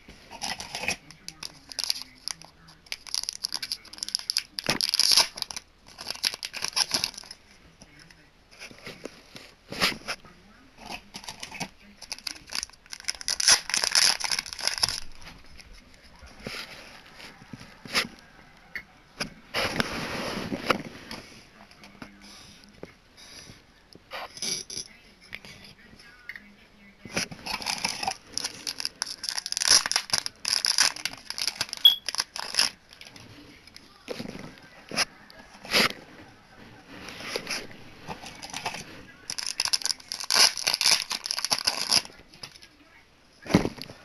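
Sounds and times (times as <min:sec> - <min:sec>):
foil wrapper crinkling and tearing: 0:00.3 - 0:07.4, 0:10.9 - 0:15.3, 0:27.4 - 0:33.2, 0:38.1 - 0:42.7.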